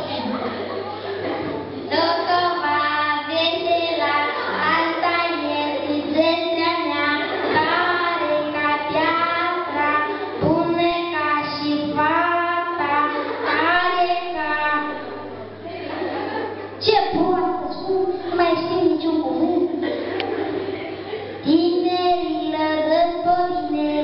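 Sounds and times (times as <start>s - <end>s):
child singing into a microphone: 1.9s - 15.3s, 16.8s - 19.8s, 21.4s - 24.0s.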